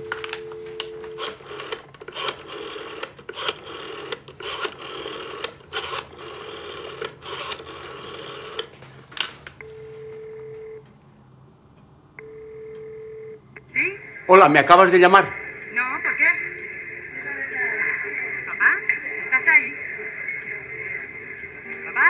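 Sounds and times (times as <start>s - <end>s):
telephone ringback beep: 0.0s - 1.8s, 9.6s - 10.8s, 12.2s - 13.4s
telephone dial tone: 0.0s - 8.7s, 9.6s - 10.9s, 12.2s - 13.4s
dialing clicks and rasps: 0.1s - 9.6s.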